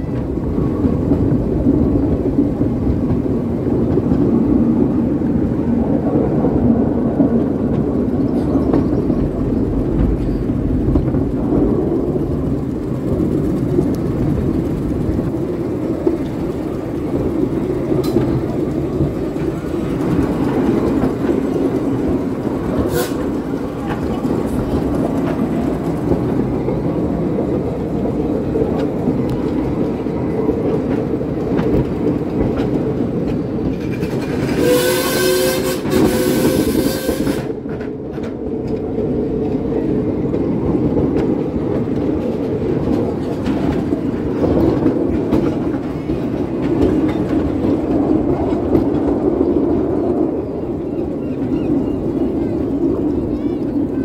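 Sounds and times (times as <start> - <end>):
train wheels rumbling on track: 0.0 - 54.0
rail-joint clicks: 12.4 - 50.1
train horn blast: 22.8 - 23.4, 34.6 - 37.6.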